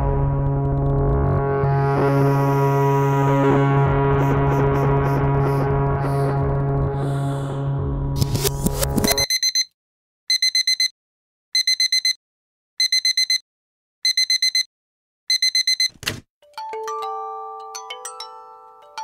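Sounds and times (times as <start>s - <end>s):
music: 0.0s - 9.2s, 16.4s - 19.0s
alarm clock beeping: 9.1s - 9.7s, 10.3s - 10.9s, 11.6s - 12.2s, 12.8s - 13.4s, 14.1s - 14.7s, 15.3s - 16.0s
glockenspiel-like chiming music: 16.4s - 19.0s.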